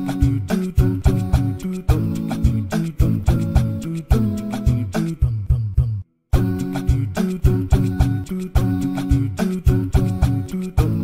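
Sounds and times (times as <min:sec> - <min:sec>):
plucked notes over a low beat: 0:00.0 - 0:11.0.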